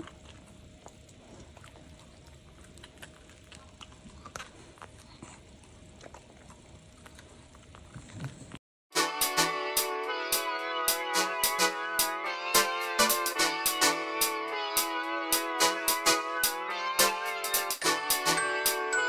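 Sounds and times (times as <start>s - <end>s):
dog gnawing corn cob: 0.0s - 8.6s
low steady hum: 0.0s - 8.6s.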